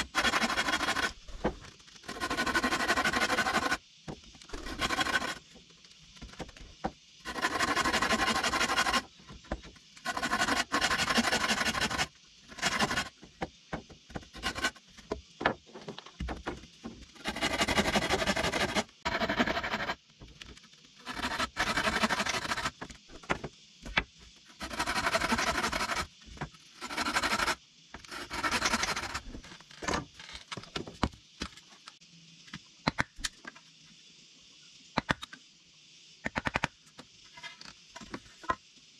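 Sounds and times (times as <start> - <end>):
hand tool scraping wood: 0.0 - 3.8, 4.5 - 5.4, 7.3 - 9.1, 10.0 - 13.1, 14.1 - 15.6, 17.2 - 20.0, 21.0 - 22.8, 24.6 - 26.1, 26.8 - 29.4.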